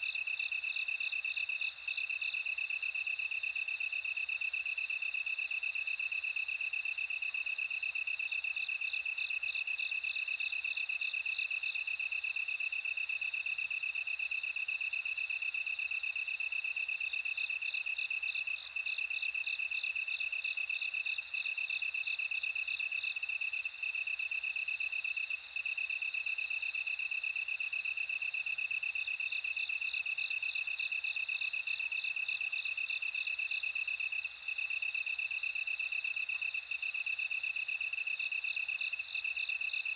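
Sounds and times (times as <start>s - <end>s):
crickets pulsed trill: 0.0s - 39.9s
crickets ringing song: 0.0s - 39.9s.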